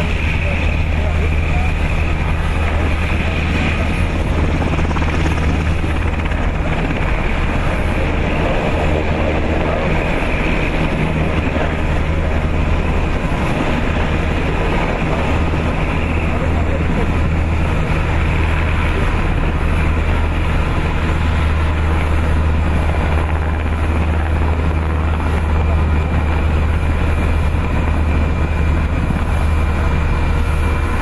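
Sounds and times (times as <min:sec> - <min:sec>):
helicopter rotors and engines: 0:00.0 - 0:31.0.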